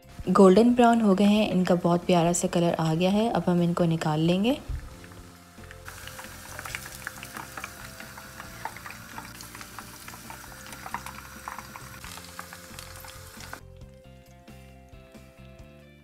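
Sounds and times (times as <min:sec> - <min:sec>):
hot oil sizzling and popping: 0:02.9 - 0:14.6.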